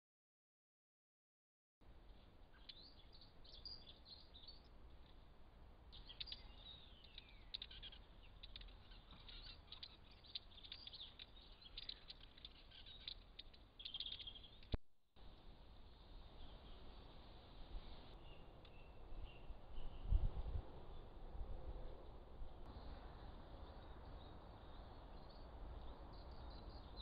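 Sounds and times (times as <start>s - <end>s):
small birds chirping: 2.0s - 21.2s, 22.5s - 27.0s.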